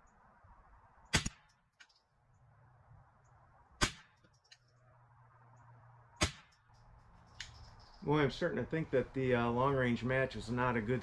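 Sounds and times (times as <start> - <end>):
rifle shots: 1.1 - 1.5, 3.8 - 4.2, 6.2 - 6.6.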